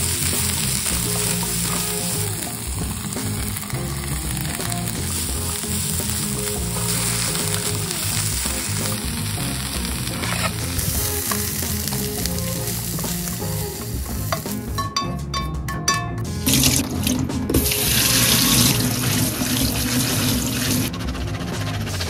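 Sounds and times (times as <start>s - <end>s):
vegetables sizzling in a pan: 0.0s - 14.8s
tap water running into strainer: 16.4s - 20.9s.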